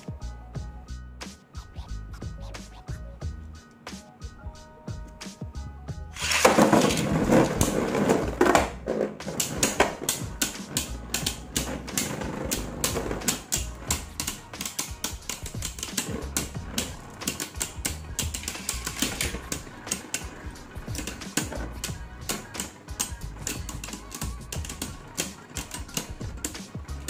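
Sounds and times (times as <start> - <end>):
spinning tops clashing: 6.1 - 26.7.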